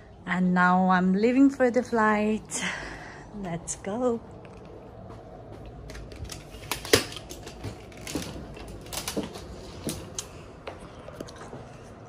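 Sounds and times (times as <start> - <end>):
wheeled suitcase clicks and rattles: 5.7 - 10.2.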